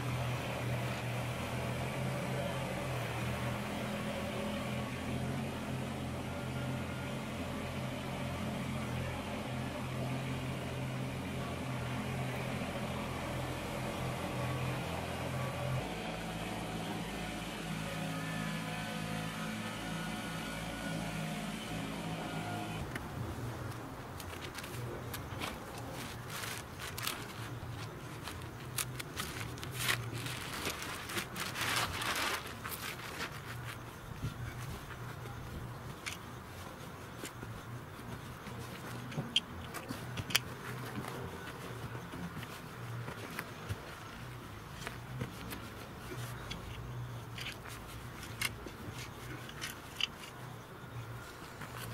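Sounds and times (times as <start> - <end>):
plastic wrapper crinkling: 24.2 - 34.0
tractor diesel engine running: 24.8 - 36.0.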